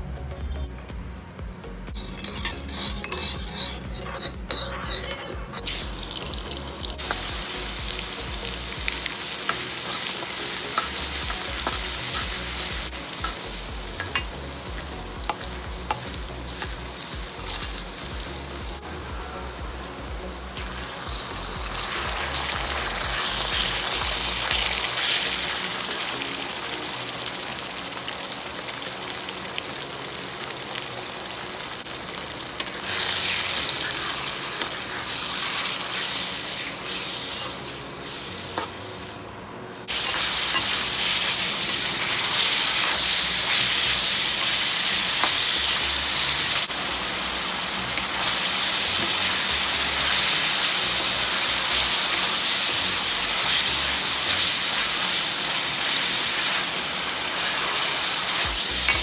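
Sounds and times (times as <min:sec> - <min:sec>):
metal spatula turning food: 0:01.9 - 0:08.2, 0:08.9 - 0:18.3, 0:32.6 - 0:38.8, 0:39.8 - 0:59.0
chicken sizzling in hot oil: 0:02.0 - 0:39.1, 0:39.7 - 0:59.0.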